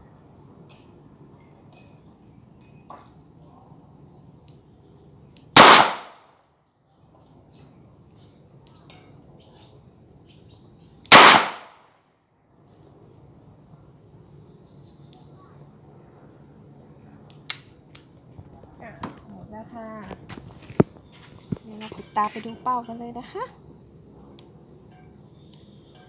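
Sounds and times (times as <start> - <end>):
crickets chirping: 0.0 - 26.0
gunshots: 5.6 - 6.2, 11.1 - 11.8.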